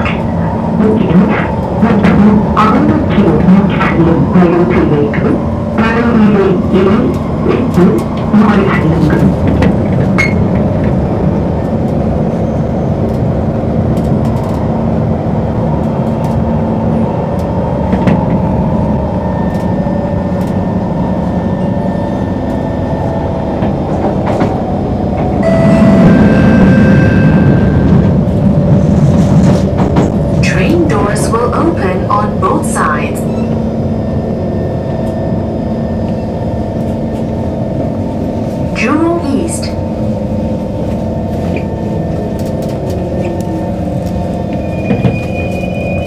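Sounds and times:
train wheels and motors rumbling: 0.0s - 46.0s.

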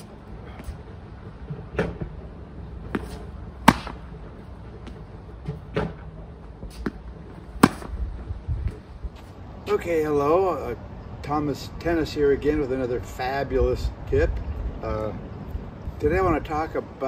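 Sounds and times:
tennis balls struck with racket: 2.8s - 6.0s, 6.6s - 8.0s
balls bouncing on hard court: 2.9s - 4.1s, 7.6s - 7.9s.

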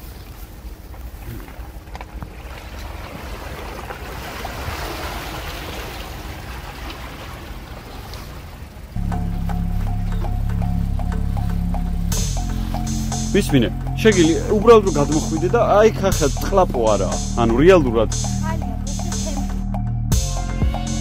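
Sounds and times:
tyres splashing through muddy water: 0.0s - 19.5s
low rumble: 8.9s - 21.0s
music with a steady beat: 9.0s - 21.0s.

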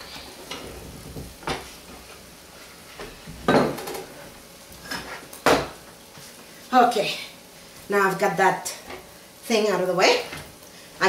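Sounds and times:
pans and utensils clattering: 3.4s - 4.2s.

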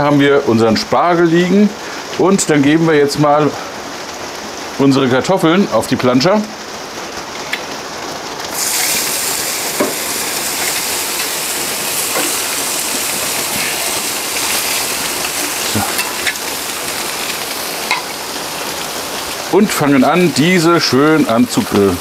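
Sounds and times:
rain falling: 0.0s - 22.0s
potatoes sizzling on hot plate: 8.4s - 22.0s.

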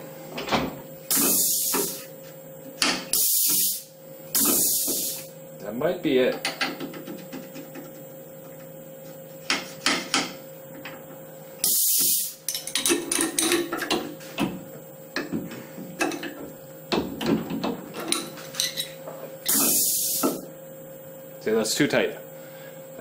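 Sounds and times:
steady machine hum: 0.0s - 23.0s
compressed air blast: 1.1s - 2.1s, 3.1s - 5.3s, 11.6s - 12.4s, 19.5s - 20.4s.

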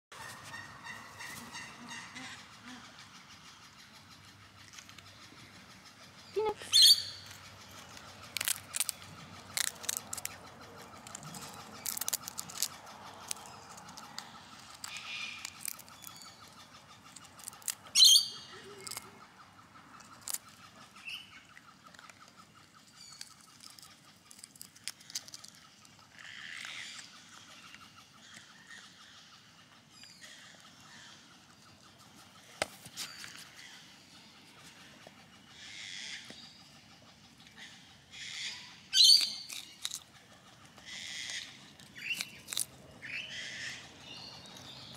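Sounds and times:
animal crunching food: 6.4s - 28.8s, 38.2s - 44.9s.

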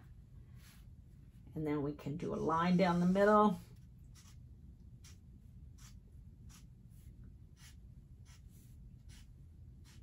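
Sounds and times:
low room hum: 0.0s - 10.0s
marker scratching on paper: 2.3s - 4.4s, 5.0s - 10.0s.

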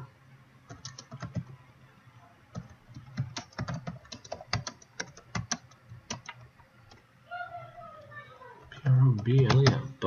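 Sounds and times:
keyboard keystroke clicks: 2.5s - 7.0s, 9.2s - 9.9s.

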